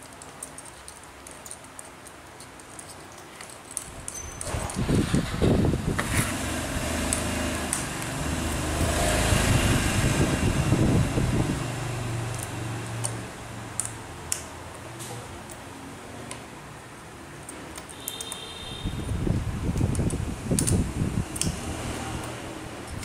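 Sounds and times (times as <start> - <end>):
hex key clicking on bolts: 0.0 - 4.8, 17.4 - 18.5, 19.7 - 23.0.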